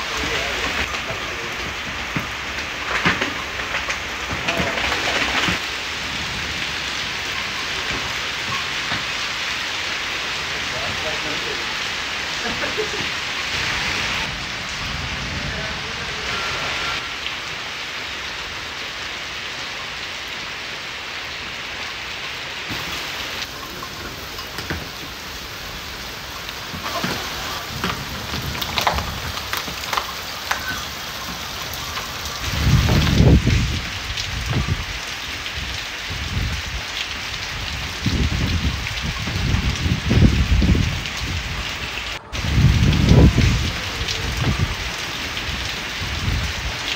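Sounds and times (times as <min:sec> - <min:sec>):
heavy rain on leaves and roof: 0:00.0 - 0:46.9
deep thunder rumbles: 0:12.4 - 0:17.1, 0:22.7 - 0:46.9.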